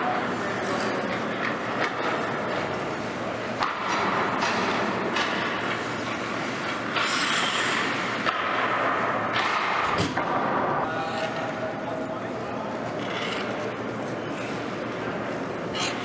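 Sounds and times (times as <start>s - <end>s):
steady background hum: 0.0s - 16.0s
skate blades scraping on ice: 5.7s - 8.2s.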